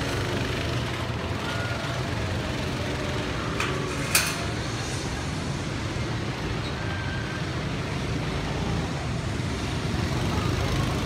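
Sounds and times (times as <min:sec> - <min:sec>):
roller coaster rumbling on track: 0:00.0 - 0:11.0.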